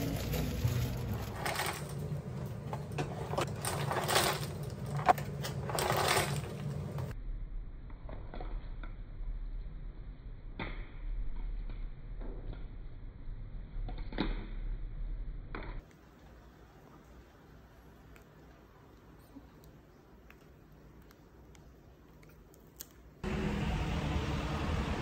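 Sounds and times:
low hum: 0.0 - 15.8, 23.2 - 25.0.

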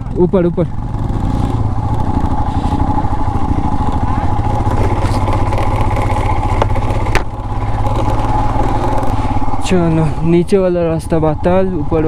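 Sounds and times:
motorcycle engine thumping: 0.8 - 10.3.

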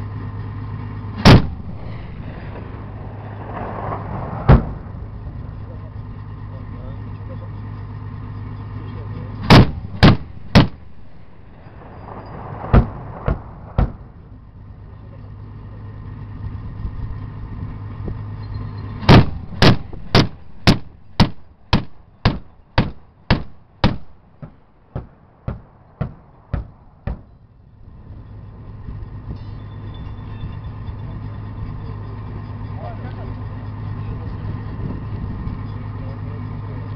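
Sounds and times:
low engine hum: 0.0 - 36.9
autocannon firing: 1.2 - 5.0, 9.5 - 14.2, 19.1 - 27.4.

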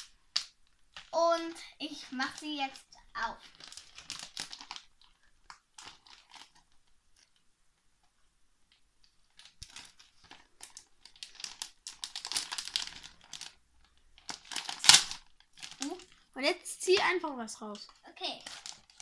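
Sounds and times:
plastic bag crinkling and tearing: 0.0 - 1.2, 3.4 - 7.4, 9.2 - 19.0.

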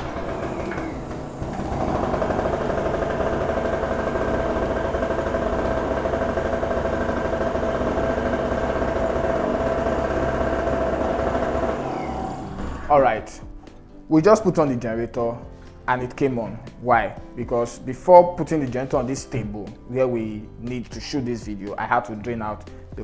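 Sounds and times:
small petrol engine running unevenly: 0.0 - 12.9.

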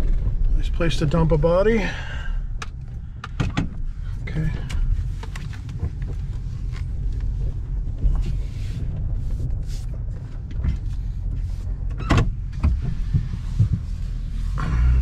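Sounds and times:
pickup truck engine rumble: 0.0 - 15.0.

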